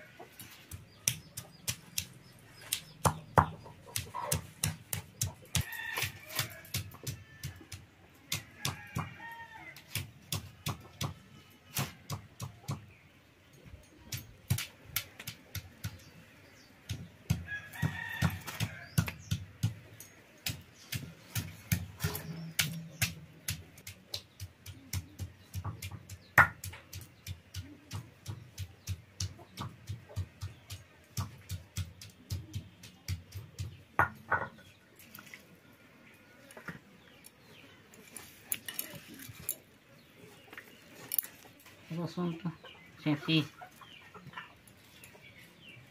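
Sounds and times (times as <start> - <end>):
hen clucking: 0.0 - 9.2, 41.9 - 45.6
chicken being chopped on a blade: 0.7 - 12.9, 20.4 - 34.5
rooster crowing: 17.5 - 18.8.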